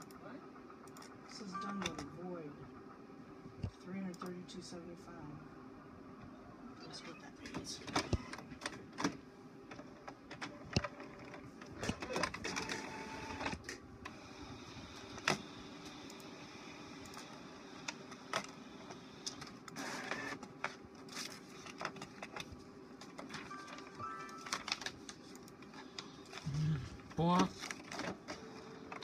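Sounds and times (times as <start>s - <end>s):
printer humming: 0.0s - 29.0s
print mechanism whirring: 6.5s - 29.0s.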